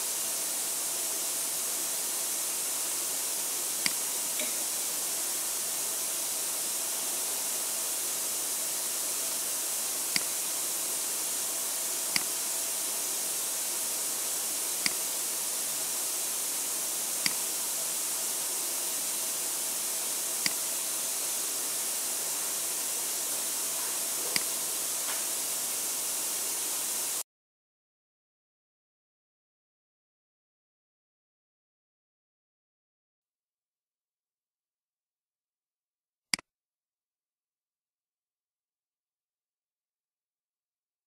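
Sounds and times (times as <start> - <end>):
high-pitched hiss: 0.0 - 27.2
sharp clicks: 12.1 - 12.3.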